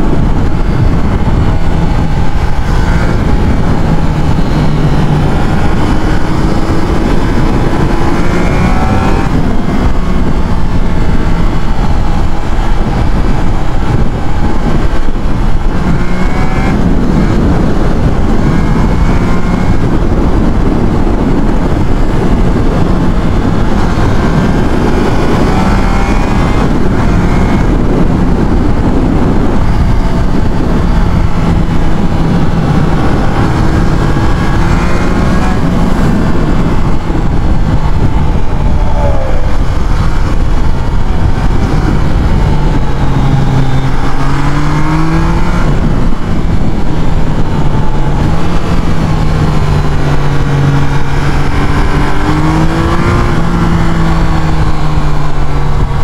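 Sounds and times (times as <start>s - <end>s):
motorcycle engine revving: 0.0s - 56.0s
wind rush on microphone: 0.0s - 56.0s.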